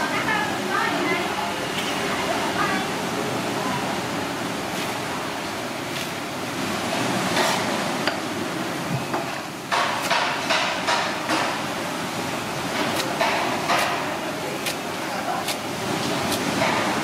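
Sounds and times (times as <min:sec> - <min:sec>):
cleaver chopping on wooden block: 0:09.7 - 0:11.5, 0:12.8 - 0:14.8.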